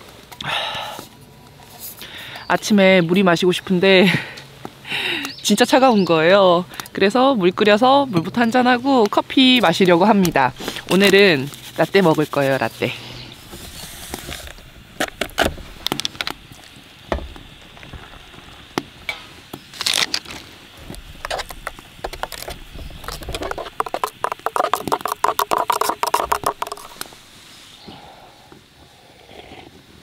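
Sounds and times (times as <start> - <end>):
cups and utensils clicking and scraping: 20.1 - 27.2
rapid clicking: 20.9 - 27.2.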